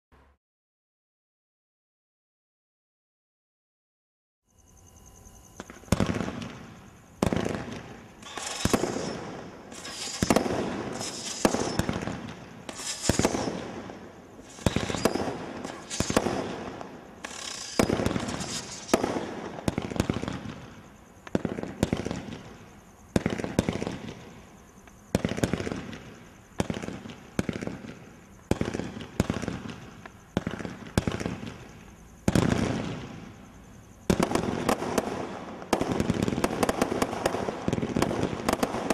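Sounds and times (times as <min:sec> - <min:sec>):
firework bangs: 0:05.6 - 0:24.5, 0:25.1 - 0:33.4, 0:34.0 - 0:38.9
hissing crackle of fireworks: 0:05.6 - 0:38.9.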